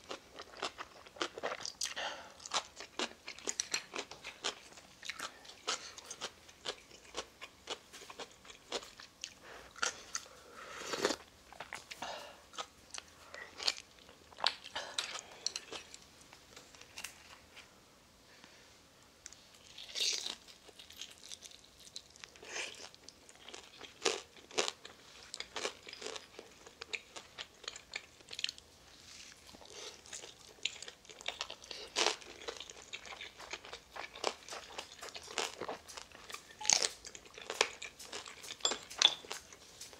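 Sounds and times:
chewing and biting food: 0:00.0 - 0:10.3, 0:19.6 - 0:28.6, 0:29.3 - 0:39.9.

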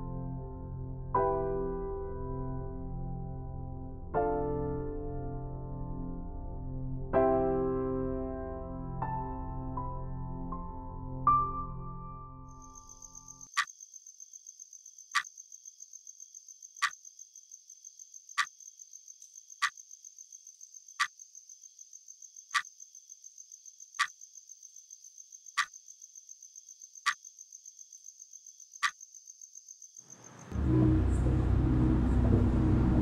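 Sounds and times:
crickets chirping: 0:12.5 - 0:31.4
sharp clicks: 0:22.5 - 0:22.7, 0:25.6 - 0:25.8.

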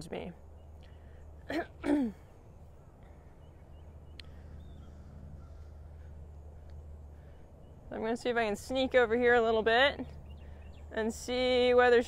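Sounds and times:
low outdoor rumble: 0:00.0 - 0:12.0
faint bird chirps: 0:00.2 - 0:01.5, 0:02.2 - 0:08.2.

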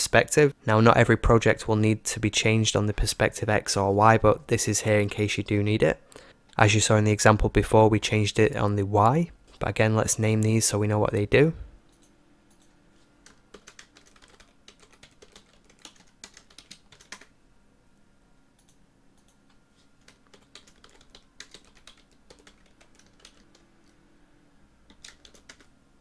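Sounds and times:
computer keyboard typing: 0:11.9 - 0:17.3, 0:18.6 - 0:24.0, 0:24.9 - 0:25.7.

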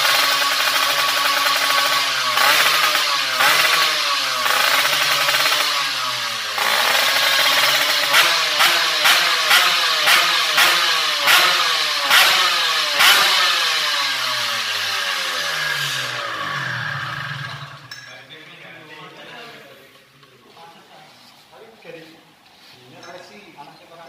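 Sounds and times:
motorcycle engine winding down: 0:00.0 - 0:18.1.

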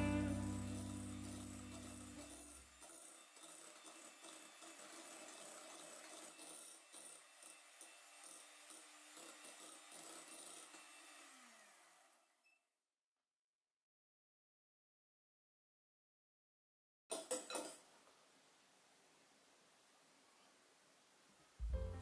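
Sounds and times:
electric hand mixer whipping: 0:00.0 - 0:12.2.

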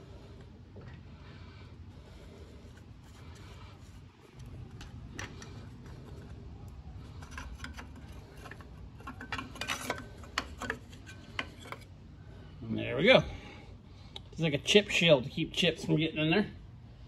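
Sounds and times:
small metallic clicks and scrapes: 0:03.4 - 0:11.9.

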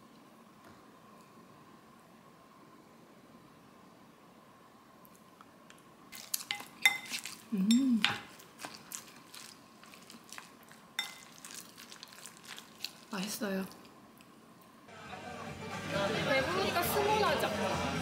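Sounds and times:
person humming: 0:07.5 - 0:08.2.

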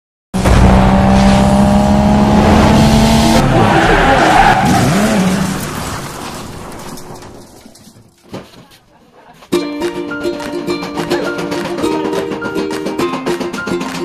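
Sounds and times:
car engine running: 0:00.4 - 0:03.6
car tyres squealing: 0:03.1 - 0:06.7.

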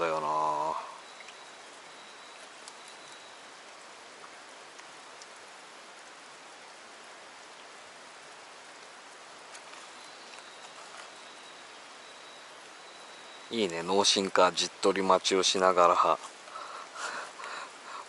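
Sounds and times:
steady outdoor hiss: 0:00.0 - 0:18.0
faint ticks: 0:01.0 - 0:06.1, 0:08.7 - 0:11.6, 0:16.2 - 0:18.0.

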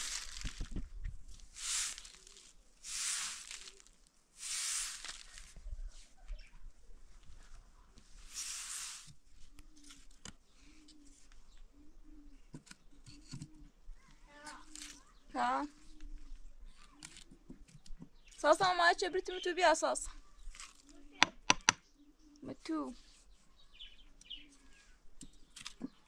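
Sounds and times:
broom sweeping concrete floor: 0:00.0 - 0:00.6, 0:01.4 - 0:06.2, 0:08.0 - 0:09.2.

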